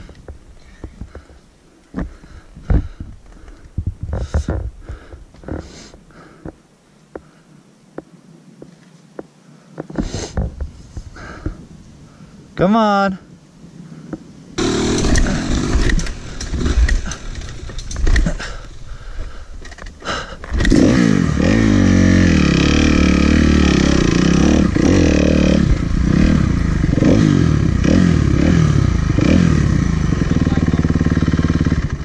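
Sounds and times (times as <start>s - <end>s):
dirt bike engine revving: 14.6s - 18.5s, 20.5s - 32.0s.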